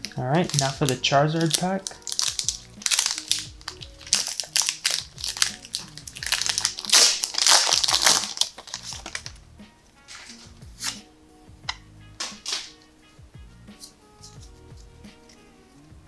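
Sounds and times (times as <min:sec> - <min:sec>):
foil wrapper crinkling and tearing: 0:00.0 - 0:09.4, 0:10.1 - 0:11.0
soft background music: 0:00.0 - 0:16.0.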